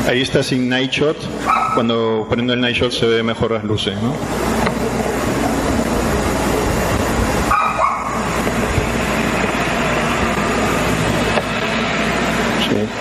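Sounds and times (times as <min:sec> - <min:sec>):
outdoor background noise: 0:00.0 - 0:13.0
dog barking: 0:01.4 - 0:01.9, 0:07.5 - 0:08.3
steady hiss: 0:02.4 - 0:13.0.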